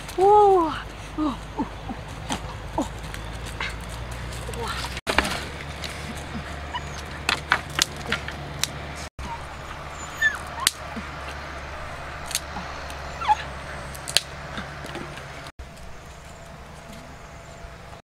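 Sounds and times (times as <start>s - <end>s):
dogs whimpering and yipping: 5.9s - 7.4s, 9.2s - 11.5s, 12.5s - 13.9s.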